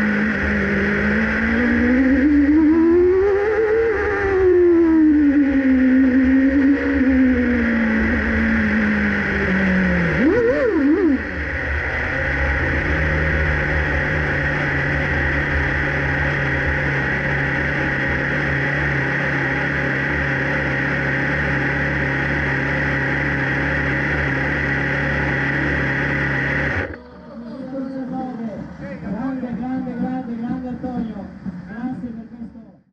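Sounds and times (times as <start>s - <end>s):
racing car engine revving and idling: 0.0s - 32.9s.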